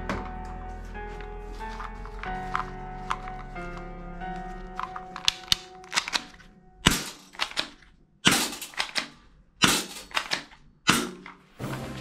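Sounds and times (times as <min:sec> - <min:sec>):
toy pistol plastic clicks: 0:04.8 - 0:06.4, 0:08.5 - 0:09.2.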